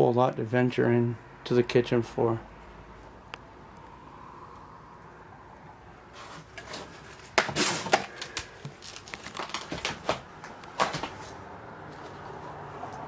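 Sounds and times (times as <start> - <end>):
footsteps crunching over debris: 6.7 - 12.3.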